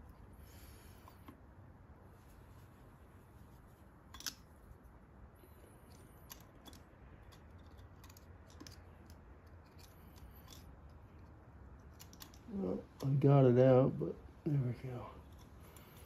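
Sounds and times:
small metallic clicks and scrapes: 0:05.4 - 0:13.2, 0:15.2 - 0:16.0.

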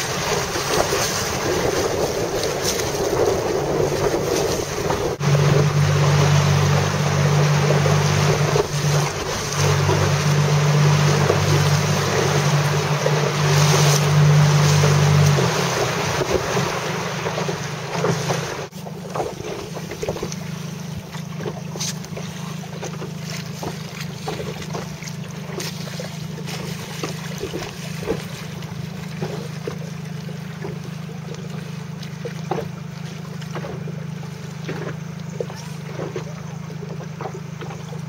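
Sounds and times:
wind rumble on microphone: 0:00.0 - 0:21.1
water lapping against boat hull: 0:00.0 - 0:38.0.

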